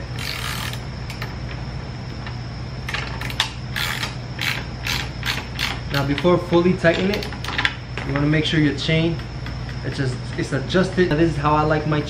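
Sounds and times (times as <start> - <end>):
steady low hum: 0.0 - 12.0
ratchet wrench clicking: 0.1 - 1.2, 3.2 - 6.2.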